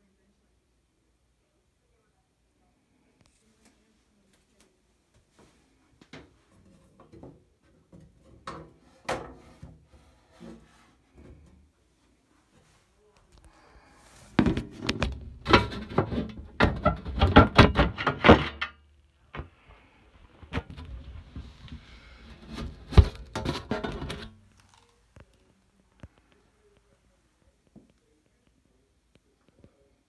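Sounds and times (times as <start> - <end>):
handling knocks and clatters: 14.3 - 19.5, 20.4 - 24.7.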